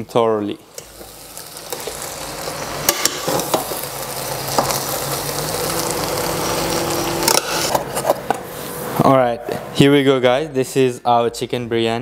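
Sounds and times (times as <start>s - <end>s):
hot pot sizzling: 0.5s - 8.9s.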